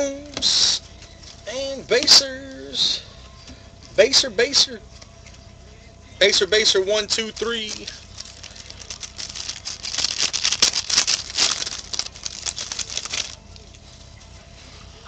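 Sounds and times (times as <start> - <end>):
foil wrapper crackling: 6.6 - 13.8
trading cards rustling: 6.6 - 13.8.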